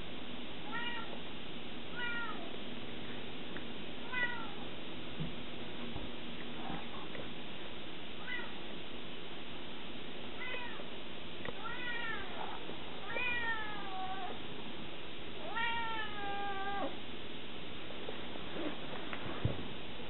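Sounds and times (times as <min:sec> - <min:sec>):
cat meowing: 0:00.7 - 0:01.2, 0:01.9 - 0:02.5, 0:04.0 - 0:04.6, 0:08.2 - 0:08.6, 0:10.4 - 0:10.8, 0:11.6 - 0:12.4, 0:13.0 - 0:14.4, 0:15.4 - 0:17.0.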